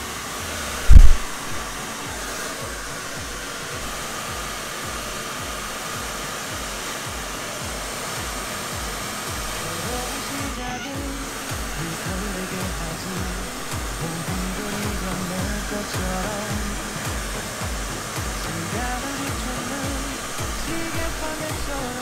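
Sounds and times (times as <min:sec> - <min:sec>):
hair dryer blowing: 0:00.0 - 0:22.0
loud low thump: 0:00.9 - 0:01.8.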